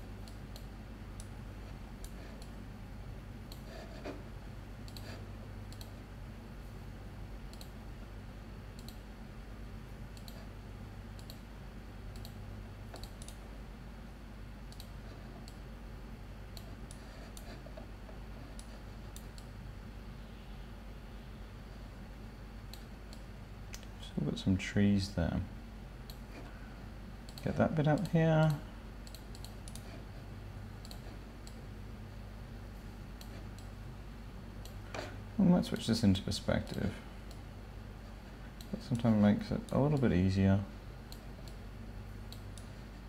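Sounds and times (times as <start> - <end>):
computer mouse clicking: 0.2 - 1.4, 3.5 - 4.2, 4.8 - 6.0, 7.5 - 7.8, 8.8 - 9.0, 10.1 - 10.5, 11.1 - 11.4, 12.1 - 13.4, 14.7 - 15.6, 16.5 - 17.9, 18.5 - 19.6, 27.2 - 30.0, 30.8 - 31.6, 33.2 - 33.7, 34.6 - 35.1, 42.3 - 42.8.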